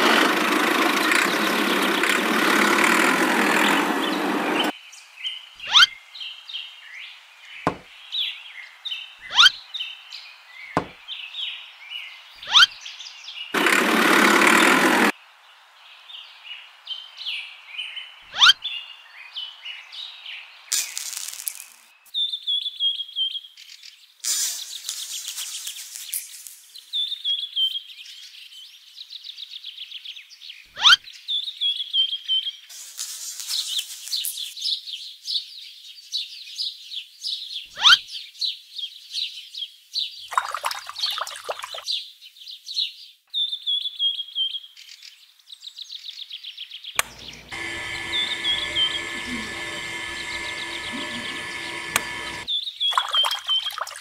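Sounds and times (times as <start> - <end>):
birds chirping: 0.0 - 14.6, 40.3 - 42.0, 47.0 - 54.0.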